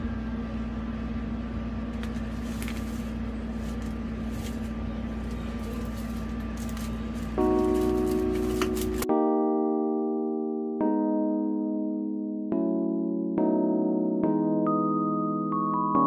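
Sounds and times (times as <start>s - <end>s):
steady low hum: 0.0s - 9.3s
plastic wrap crinkles and clicks: 3.7s - 9.1s.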